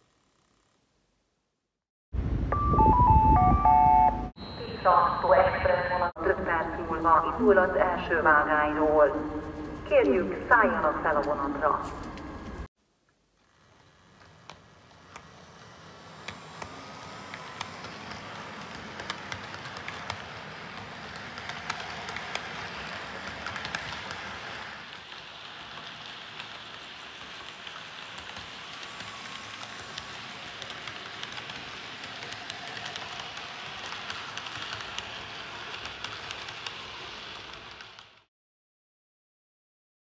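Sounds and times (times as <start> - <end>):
model train rattling on track: 13.6 - 38.3.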